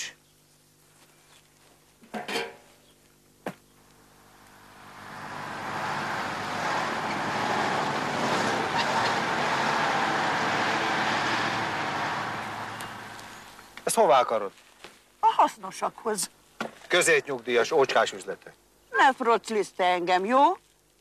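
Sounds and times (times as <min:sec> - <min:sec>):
lorry driving by: 0:04.2 - 0:13.7.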